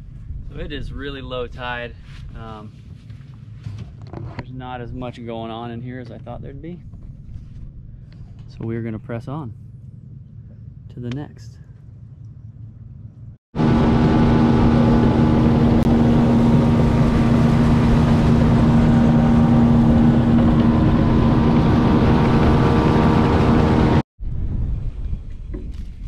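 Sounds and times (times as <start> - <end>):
wind noise: 0.0 - 8.6, 13.6 - 26.0
outboard motor running: 13.6 - 24.0
water noise: 13.6 - 24.0.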